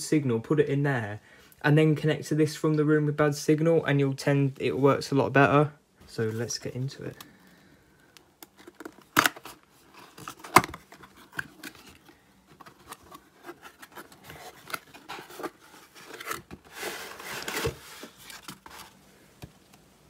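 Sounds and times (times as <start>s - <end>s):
box sliding out of sleeve: 9.8s - 19.0s.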